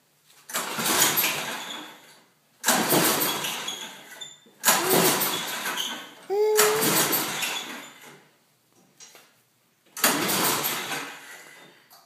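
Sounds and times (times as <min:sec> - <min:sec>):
engine pull-start recoil: 0:02.6 - 0:04.0, 0:04.6 - 0:06.0, 0:10.0 - 0:11.6.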